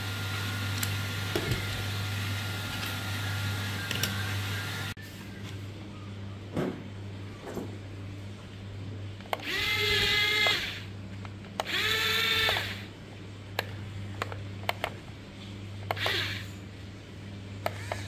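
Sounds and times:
toy gear motors whining: 2.6 - 4.9, 9.4 - 10.9, 11.6 - 12.9, 15.9 - 16.6, 17.7 - 18.0.

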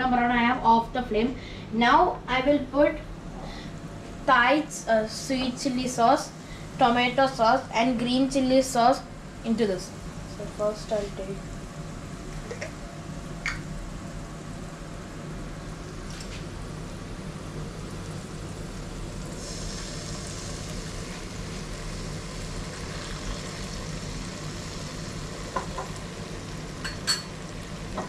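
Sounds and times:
steady low hum: 0.0 - 28.0
sauce sizzling in hot oil: 17.4 - 28.0.

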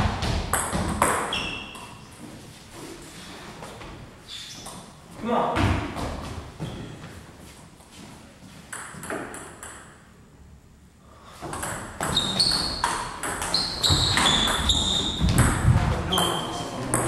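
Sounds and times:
table tennis ball bouncing: 0.2 - 1.9, 8.7 - 10.0, 11.5 - 17.0.

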